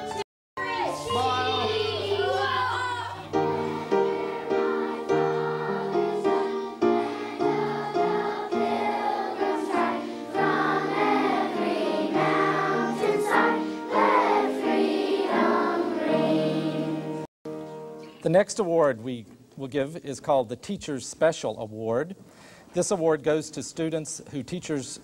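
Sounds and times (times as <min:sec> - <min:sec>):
piano chords: 0:00.0 - 0:18.2
children singing: 0:00.6 - 0:17.3.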